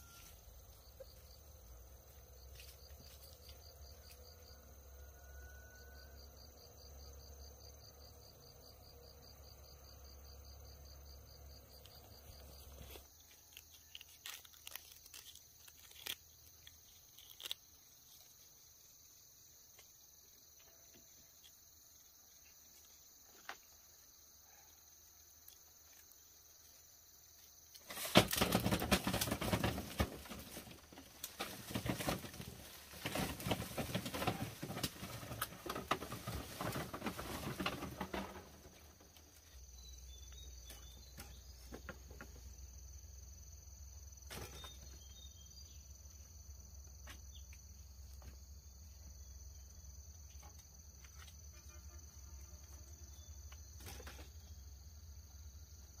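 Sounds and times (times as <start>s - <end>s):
insects chirring: 0.0s - 56.0s
dense rustling and crackling: 12.4s - 18.5s, 27.8s - 39.4s.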